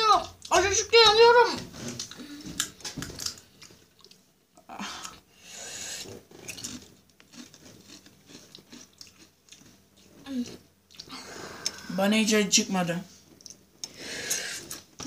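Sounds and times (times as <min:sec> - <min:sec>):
chips crunching and chewing: 0:06.1 - 0:11.1.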